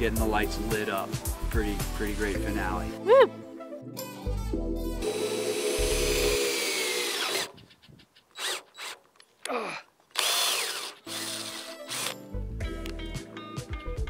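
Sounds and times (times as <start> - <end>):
background music: 0.0 - 7.1, 11.0 - 14.0
cordless drill boring through metal: 5.0 - 7.6, 8.4 - 9.0, 10.2 - 12.2.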